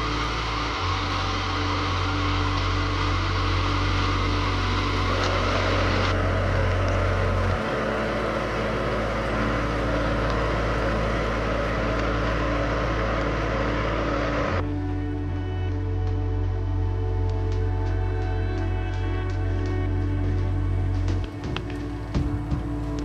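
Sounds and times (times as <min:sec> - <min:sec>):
gas stove hissing with low hum: 0:00.0 - 0:14.4
soup boiling in pot: 0:00.0 - 0:14.4.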